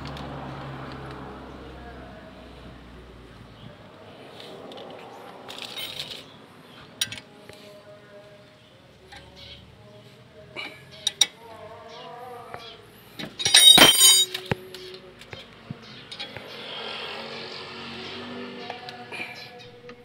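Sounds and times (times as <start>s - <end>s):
light metal clinks: 13.2s - 14.4s
loud ringing metallic clank: 13.4s - 14.4s.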